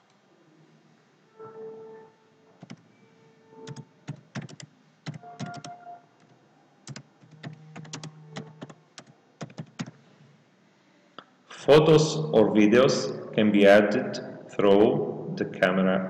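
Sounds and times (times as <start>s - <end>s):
keyboard typing clicks: 3.6s - 5.8s, 6.9s - 10.0s.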